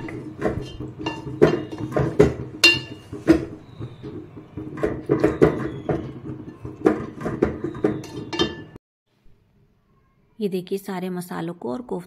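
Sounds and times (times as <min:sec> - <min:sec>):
wooden spatula scraping metal pot: 0:00.0 - 0:08.8.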